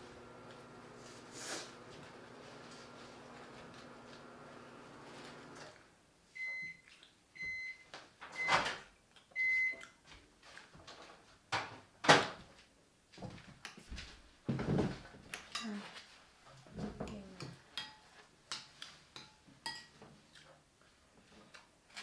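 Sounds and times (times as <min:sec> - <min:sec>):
microwave oven humming: 0:00.0 - 0:05.8
microwave beeping: 0:06.4 - 0:06.8, 0:07.4 - 0:08.7, 0:09.4 - 0:09.8.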